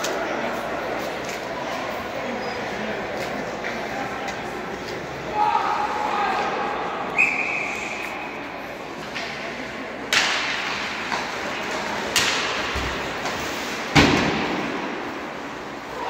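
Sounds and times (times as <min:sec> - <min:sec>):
murmur of voices: 0:00.0 - 0:16.0
knocks against rink boards: 0:10.1 - 0:15.0.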